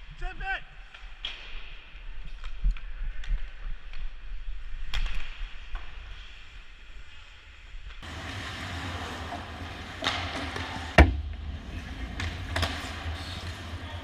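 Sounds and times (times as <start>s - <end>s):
skates on ice: 0.9s - 14.0s
sharp crack of stick or puck: 10.0s - 10.9s.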